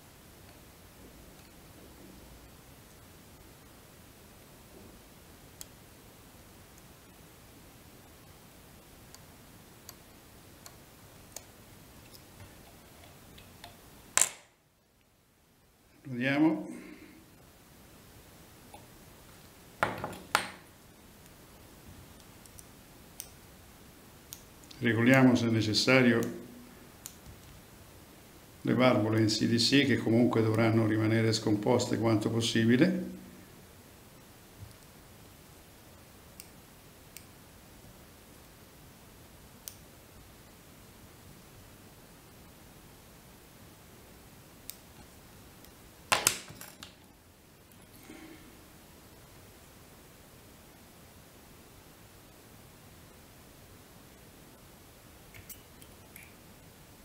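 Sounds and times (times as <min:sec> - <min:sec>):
faint hiss: 0:00.0 - 0:57.0
faint light ticks of tool: 0:27.0 - 0:27.5, 0:36.4 - 0:37.4, 0:39.6 - 0:39.9.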